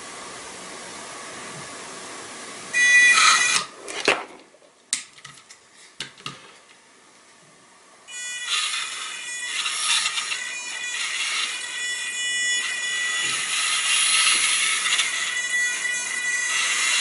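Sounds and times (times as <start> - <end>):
motors revving whine: 8.1 - 17.0
motor hiss: 8.4 - 17.0.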